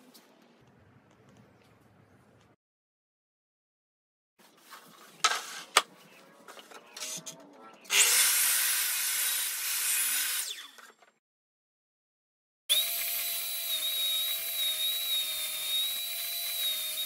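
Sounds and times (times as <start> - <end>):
mitre saw cutting wood: 7.9 - 10.8, 12.7 - 17.0.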